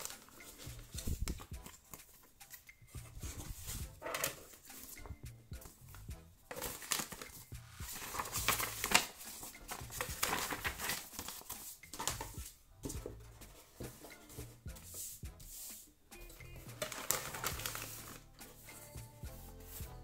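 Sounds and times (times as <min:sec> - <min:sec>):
paper leaflet rustling: 0:00.0 - 0:05.0, 0:06.5 - 0:15.8, 0:16.6 - 0:18.8
plastic bag crinkling: 0:16.8 - 0:18.2.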